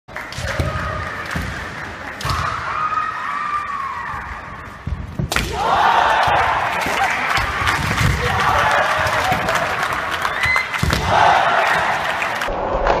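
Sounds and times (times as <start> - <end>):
people shouting: 5.4 - 12.4.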